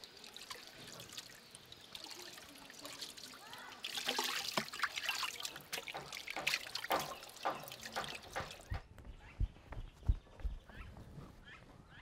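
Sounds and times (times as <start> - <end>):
water pouring and splashing: 0.0 - 8.7
soft low thumps: 8.6 - 11.3.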